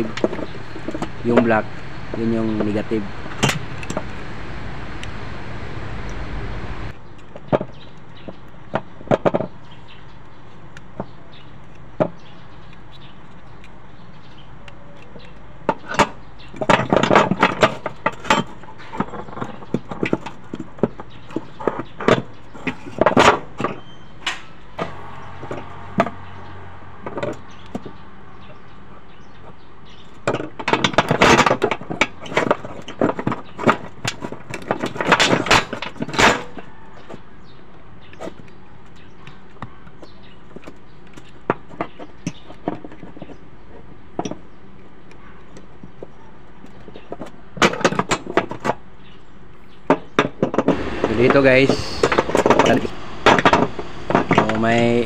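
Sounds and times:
steady background noise: 0:00.0 - 0:55.0
plastic parts clicking and rattling: 0:07.0 - 0:26.3, 0:29.9 - 0:37.2.

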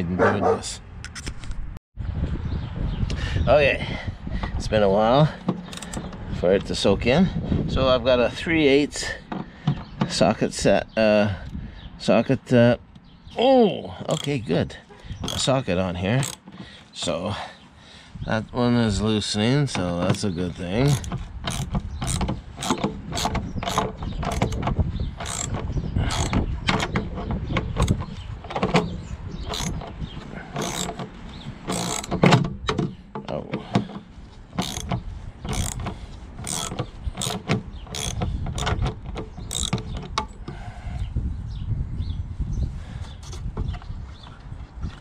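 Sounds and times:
socket ratchet clicking: 0:20.9 - 0:30.0, 0:30.6 - 0:32.7, 0:34.6 - 0:40.4.

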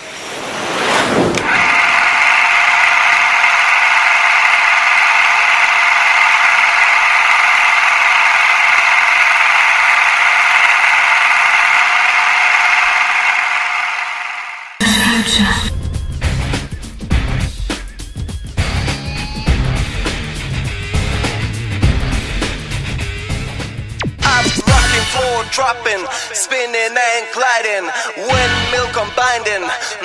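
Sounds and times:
film projector whirring rattle: 0:01.4 - 0:14.8.

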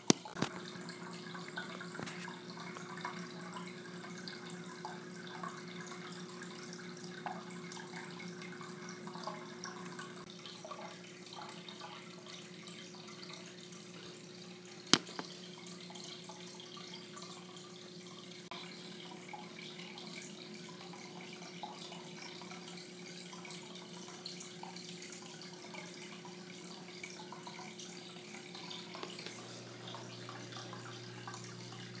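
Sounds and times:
water trickling and splashing: 0:00.0 - 0:32.0
filter low hum: 0:28.9 - 0:32.0.

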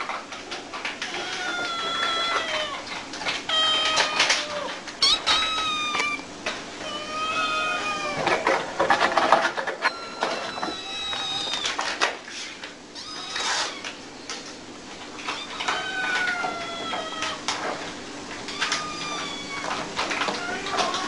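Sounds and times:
kittens meowing: 0:01.0 - 0:08.5, 0:09.8 - 0:11.9, 0:13.0 - 0:14.0, 0:15.2 - 0:17.6, 0:18.5 - 0:21.0.

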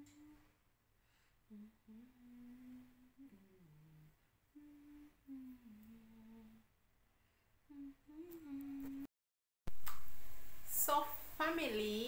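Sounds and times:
woman humming: 0:00.0 - 0:00.6, 0:01.5 - 0:06.7, 0:07.7 - 0:09.1.

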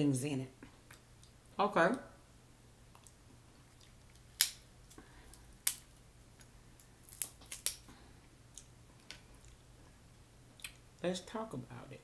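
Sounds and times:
crab shells cracking: 0:03.8 - 0:07.9.

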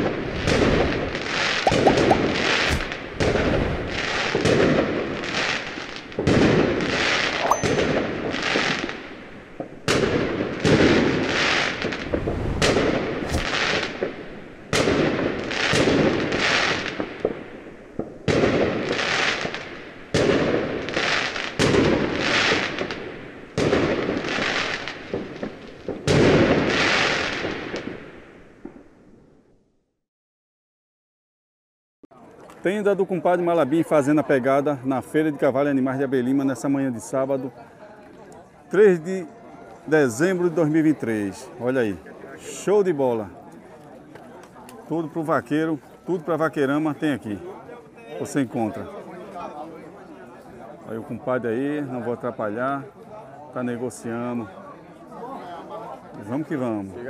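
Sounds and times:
fireworks bangs: 0:00.4 - 0:28.8.

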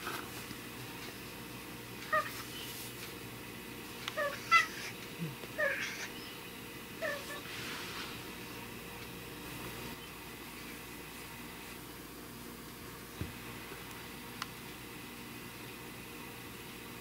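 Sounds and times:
cat meowing: 0:04.2 - 0:04.9.

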